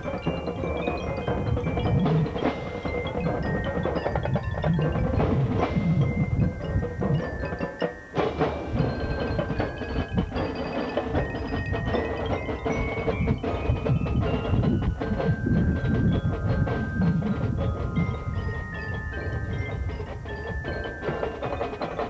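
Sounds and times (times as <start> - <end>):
marching band playing: 0.0 - 22.0
percussion strikes: 0.0 - 22.0.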